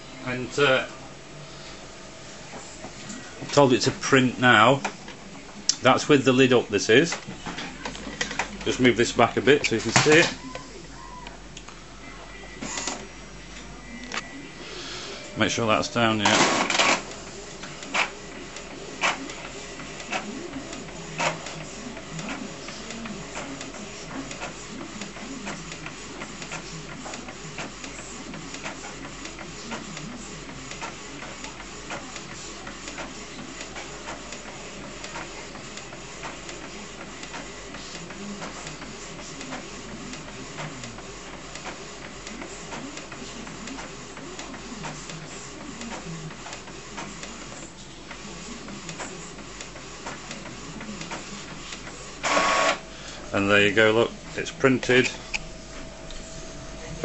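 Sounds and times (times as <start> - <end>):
paper feeding: 2.5 - 10.6, 14.6 - 57.0
print head carriage shuttling: 7.0 - 10.4
printer clicks: 9.5 - 10.6, 16.1 - 38.9.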